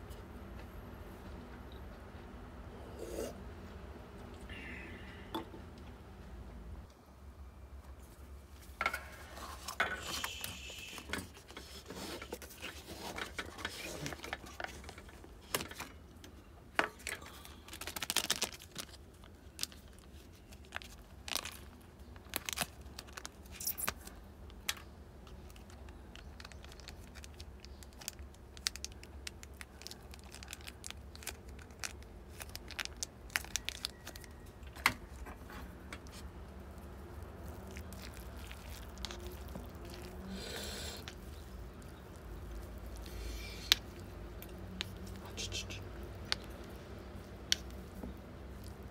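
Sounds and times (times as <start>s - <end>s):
low steady hum: 0.0s - 48.9s
food packaging crinkling and tearing: 17.0s - 45.2s, 45.9s - 48.9s.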